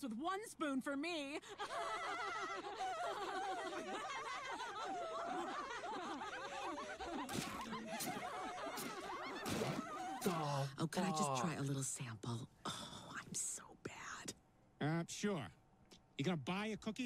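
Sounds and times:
women laughing together: 0:01.5 - 0:10.6.

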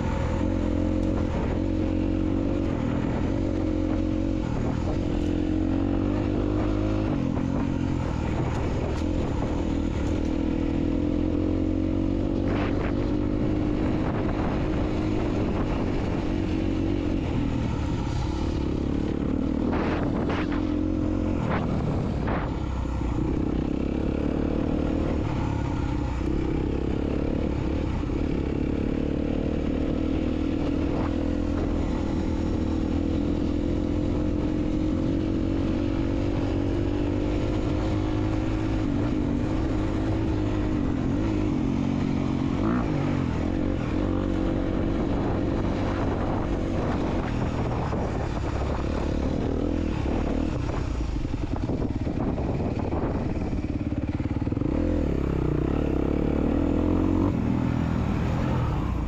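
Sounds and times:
dirt bike engine: 0:00.0 - 0:59.0.

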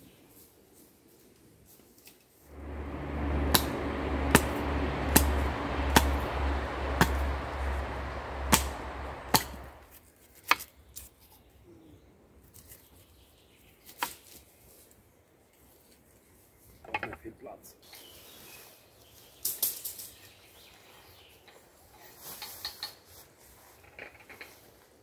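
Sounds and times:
steady rushing noise: 0:02.5 - 0:09.9.

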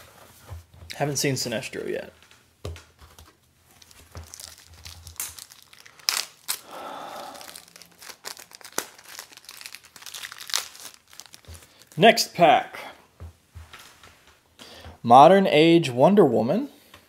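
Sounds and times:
wrapper crinkling and tearing: 0:03.7 - 0:12.0.

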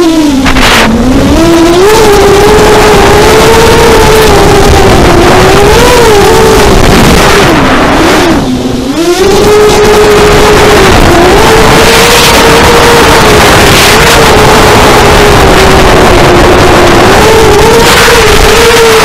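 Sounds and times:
rushing air: 0:00.0 - 0:14.4
electric motor and propeller whining: 0:00.0 - 0:19.0.

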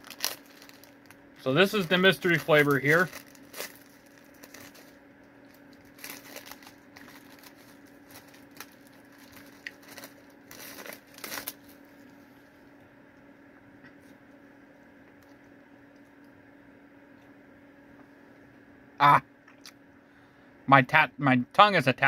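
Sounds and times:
plastic wrapper crinkling: 0:00.0 - 0:12.2
faint steady hum: 0:00.0 - 0:22.0.

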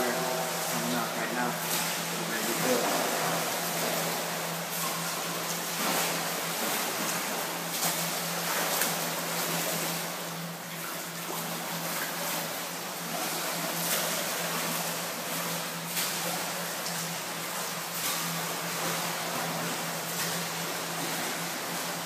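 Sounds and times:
steady low hum: 0:00.0 - 0:22.0
swimmer splashing water: 0:00.0 - 0:22.0.

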